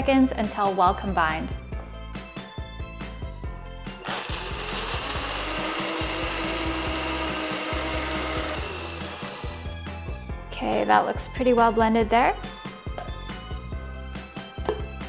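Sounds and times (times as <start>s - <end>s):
blender motor blending ice: 4.0s - 9.9s.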